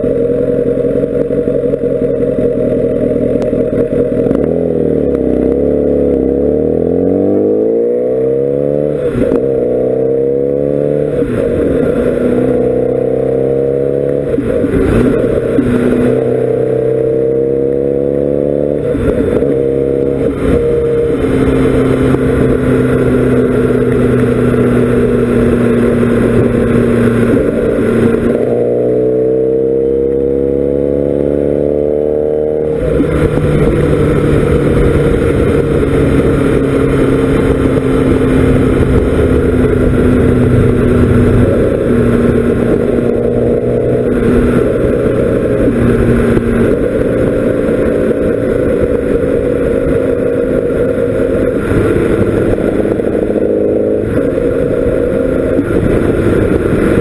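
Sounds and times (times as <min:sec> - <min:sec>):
motorcycle engine under load: 0:00.0 - 0:57.0.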